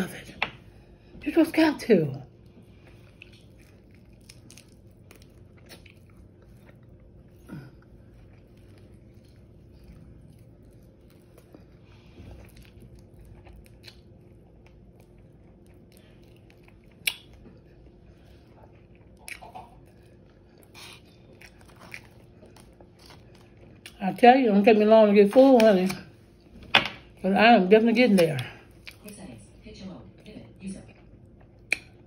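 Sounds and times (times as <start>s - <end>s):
chewing crispy food: 2.3s - 24.1s, 30.7s - 32.0s.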